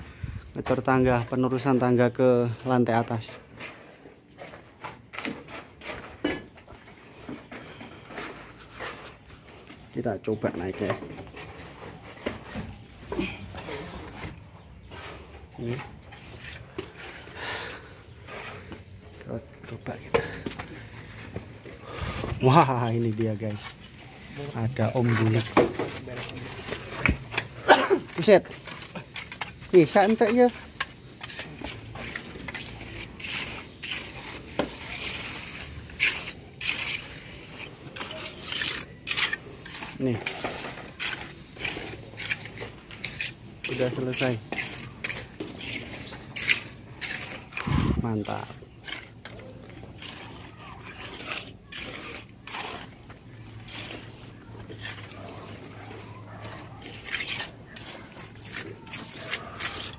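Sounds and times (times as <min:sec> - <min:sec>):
trowel scraping wet concrete: 0:00.6 - 0:59.9.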